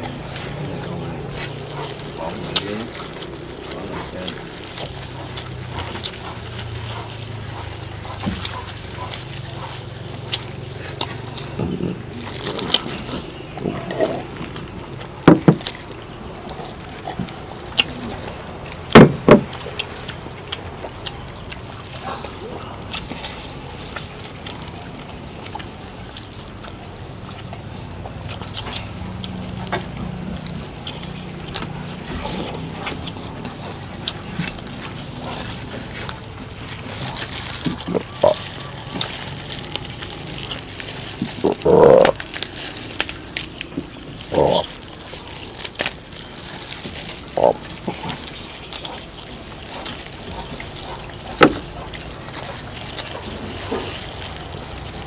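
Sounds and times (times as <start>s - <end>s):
quiet chewing: 0.0s - 55.0s.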